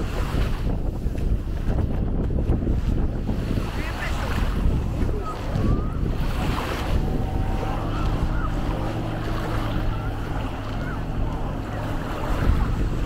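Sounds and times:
waves washing onto beach: 0:00.0 - 0:13.0
wind buffeting the microphone: 0:00.0 - 0:13.0
low steady hum: 0:04.9 - 0:13.0.

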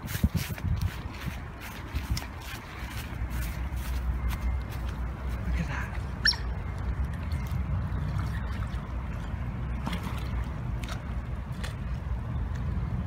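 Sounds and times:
wind rumble on microphone: 0:00.0 - 0:04.6.

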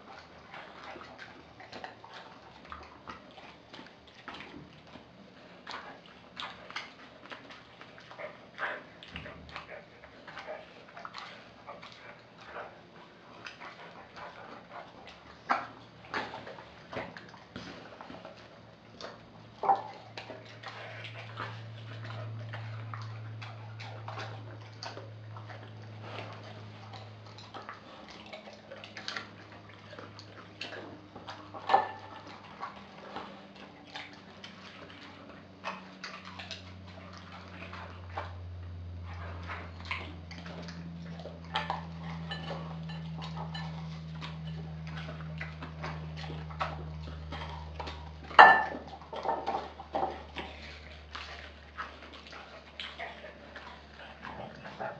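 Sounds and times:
dog chewing wet meat: 0:00.0 - 0:54.9
steady low hum: 0:00.0 - 0:54.9
clicks and knocks on glass bowl: 0:48.4 - 0:50.1.

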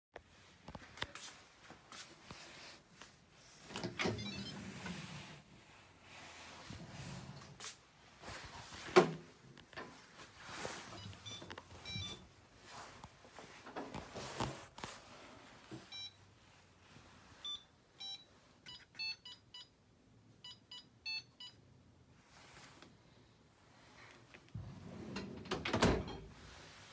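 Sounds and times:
drawer and racks rattling: 0:03.6 - 0:05.4, 0:08.3 - 0:14.8, 0:24.6 - 0:26.6
dishwasher drawer pulled open: 0:24.8 - 0:26.3.

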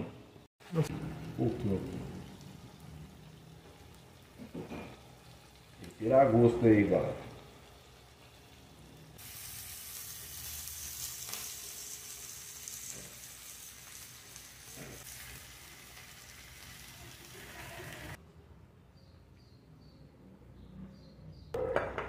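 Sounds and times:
food sizzling in a pan: 0:00.6 - 0:18.2.

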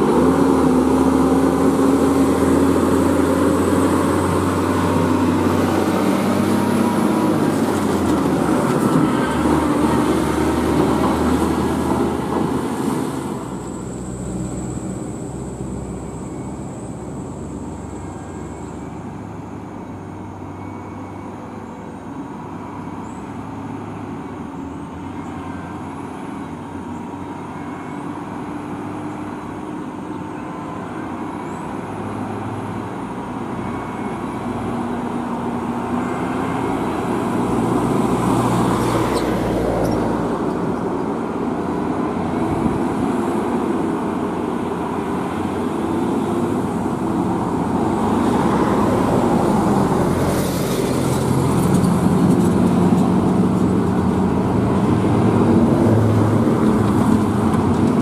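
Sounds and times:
trailer rolling past: 0:00.0 - 0:19.3
heavy truck engine running: 0:00.0 - 0:21.6.

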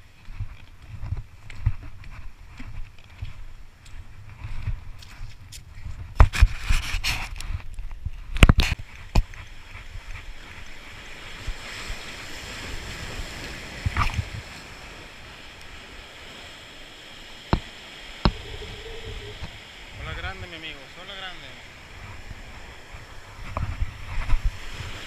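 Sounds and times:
sea surf washing against rocks: 0:09.0 - 0:25.0.

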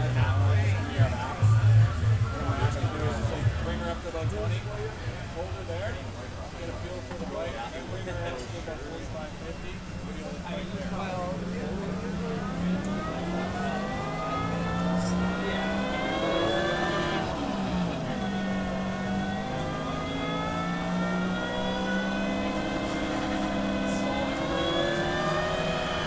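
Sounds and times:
electric motorcycle drive whining: 0:00.0 - 0:26.0
steady low hum: 0:00.0 - 0:26.0.

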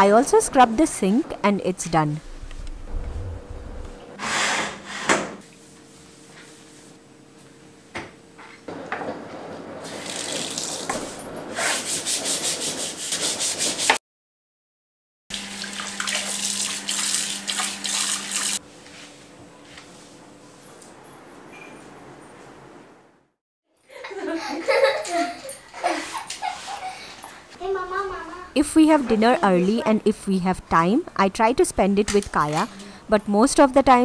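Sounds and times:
brush scrubbing sink: 0:09.9 - 0:14.0, 0:15.8 - 0:18.6, 0:25.8 - 0:27.1.

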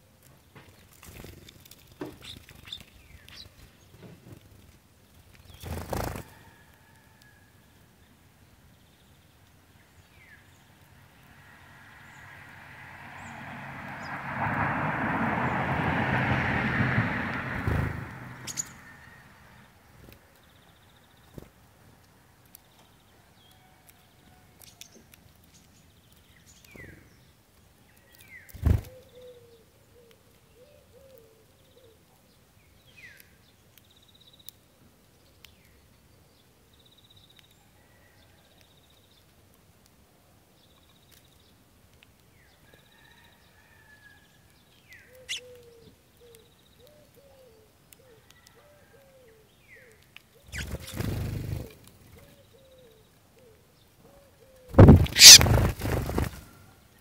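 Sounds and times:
sparrows chirping: 0:00.6 - 0:04.1, 0:05.0 - 0:06.1, 0:17.6 - 0:21.5, 0:24.6 - 0:34.6, 0:44.6 - 0:48.3, 0:49.0 - 0:56.3
bird wingbeats: 0:05.4 - 0:06.5, 0:17.6 - 0:18.8, 0:28.5 - 0:29.0, 0:50.5 - 0:52.0, 0:54.7 - 0:56.6
repeated bird calls: 0:18.4 - 0:19.1, 0:45.0 - 0:48.3, 0:49.0 - 0:56.3.

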